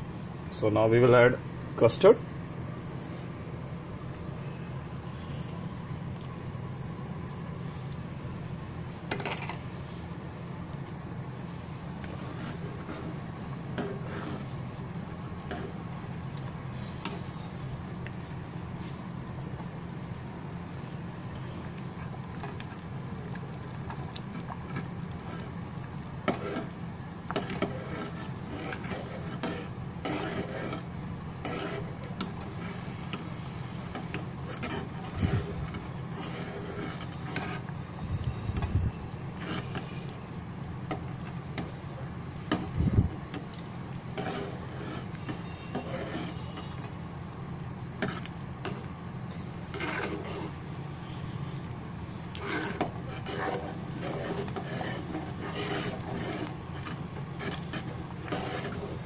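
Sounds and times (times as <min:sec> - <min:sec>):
steady low hum: 0:00.0 - 0:59.0
spoon scraping a metal pot: 0:26.3 - 0:32.8, 0:44.2 - 0:46.8, 0:52.4 - 0:59.0.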